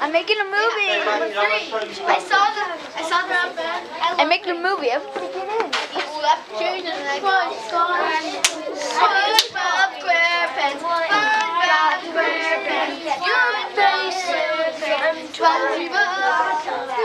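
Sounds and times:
children talking and calling out: 0:00.0 - 0:17.0.

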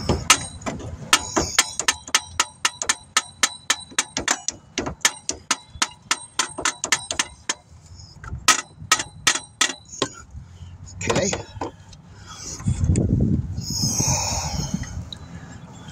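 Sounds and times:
metal-on-metal tapping: 0:00.0 - 0:10.2.

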